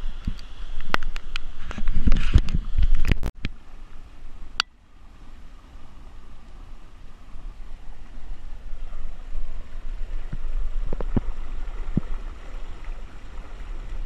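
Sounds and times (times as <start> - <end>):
low rumble: 0.0 - 14.0
water rushing over drain grate: 5.2 - 14.0.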